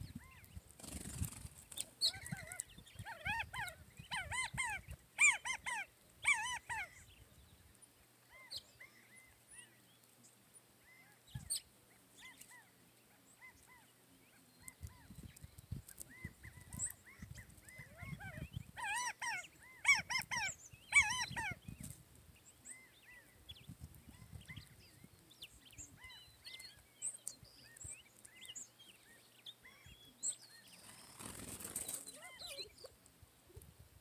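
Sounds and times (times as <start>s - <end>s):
small birds chirping: 0.0s - 33.8s
quail calling: 2.0s - 7.1s, 16.1s - 21.6s.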